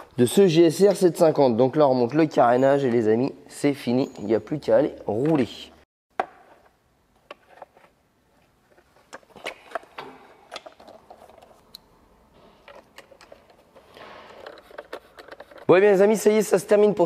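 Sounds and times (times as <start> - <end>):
plastic parts clicking and tapping: 12.6 - 15.8.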